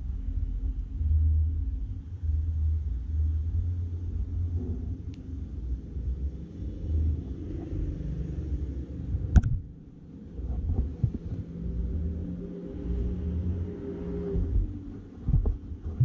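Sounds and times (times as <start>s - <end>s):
low irregular rumbling: 0.0s - 16.0s
sharp click: 9.3s - 9.6s.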